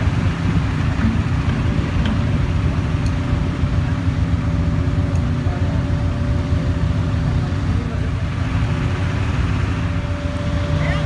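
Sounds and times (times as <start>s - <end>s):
diesel engine rumbling: 0.0s - 11.0s.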